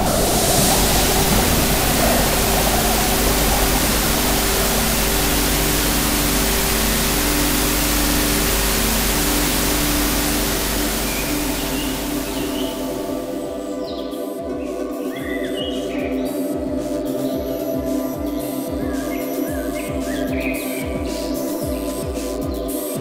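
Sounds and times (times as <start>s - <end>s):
electronic soundtrack: 0.0s - 14.6s.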